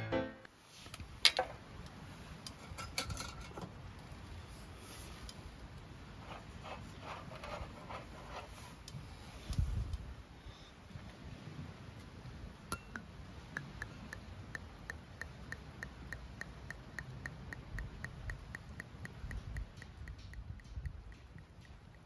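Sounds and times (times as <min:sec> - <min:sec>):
steady ticking: 0:12.7 - 0:22.0.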